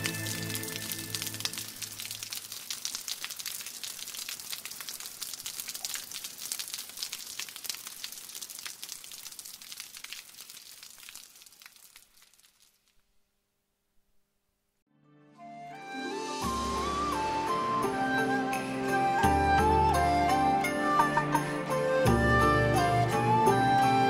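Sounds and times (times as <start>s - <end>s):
rain pattering: 0.0s - 13.1s.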